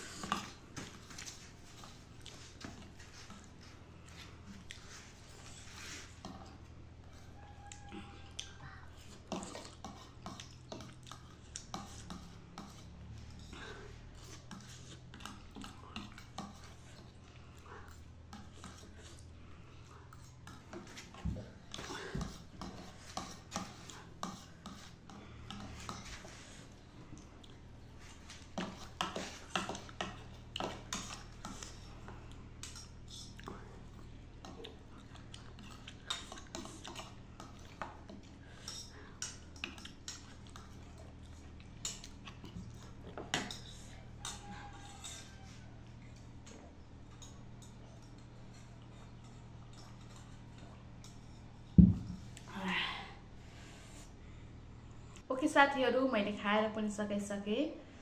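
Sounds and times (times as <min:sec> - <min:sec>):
chewing: 0:00.0 - 0:52.5
fork scraping a plate: 0:09.0 - 0:17.2, 0:17.9 - 0:19.3, 0:20.0 - 0:26.8, 0:27.9 - 0:52.4.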